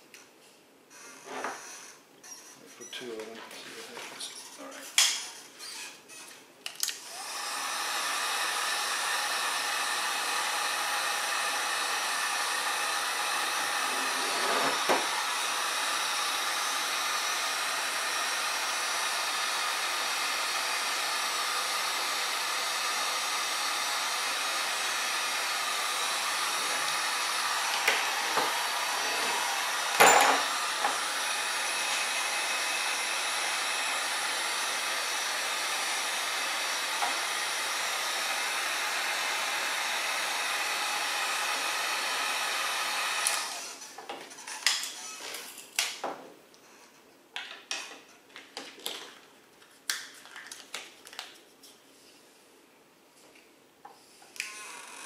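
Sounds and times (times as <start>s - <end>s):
heat gun blowing: 6.8s - 44.0s, 54.3s - 55.0s.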